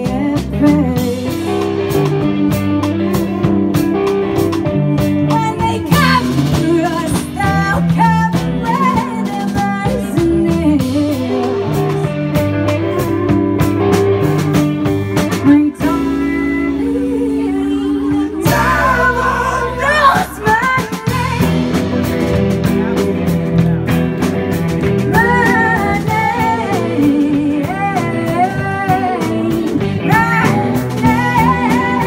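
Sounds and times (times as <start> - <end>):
drum kit: 0.0 - 32.0
electric guitars: 0.0 - 32.0
person singing: 15.4 - 22.1, 25.1 - 32.0.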